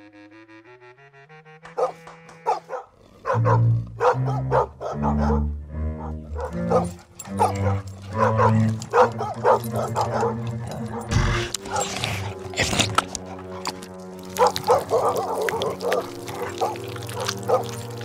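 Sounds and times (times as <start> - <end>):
large dog barking: 1.7 - 18.0
background music with bass notes: 3.4 - 18.0.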